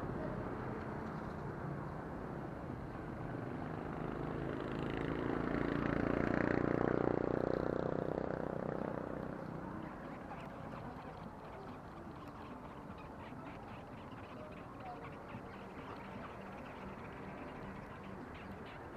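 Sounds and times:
traffic hum: 0:00.0 - 0:18.9
vehicle engine passing by: 0:03.5 - 0:11.5.

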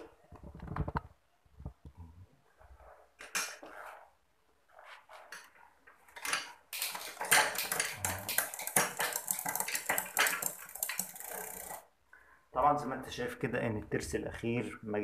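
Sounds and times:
bicycle chain clattering and clicking: 0:05.2 - 0:11.9.

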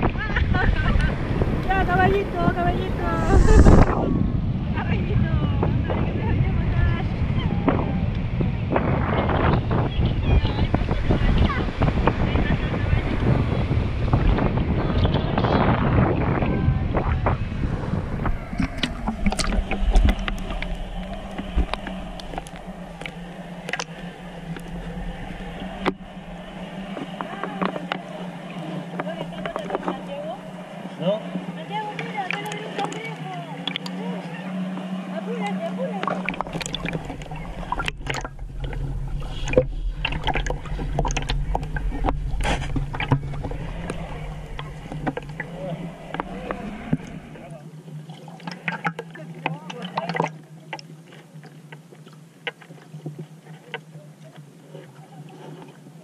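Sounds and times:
steady low hum: 0:00.0 - 0:48.4
muffled water sloshing: 0:00.0 - 0:56.0
underwater ticks and clicks: 0:17.0 - 0:56.0.

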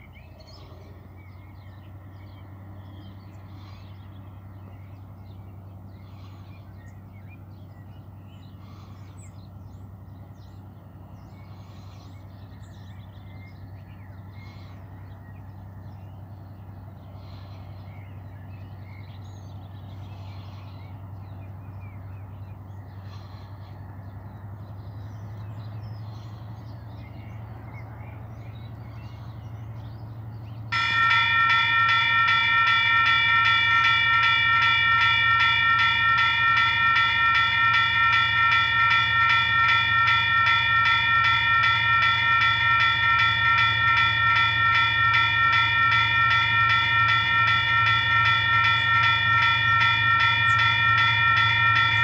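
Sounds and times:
steady low hum: 0:19.6 - 0:52.0.

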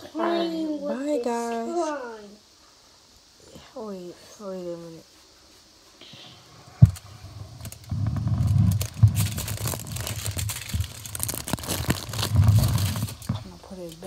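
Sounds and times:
clicks and crackles: 0:06.8 - 0:14.0.

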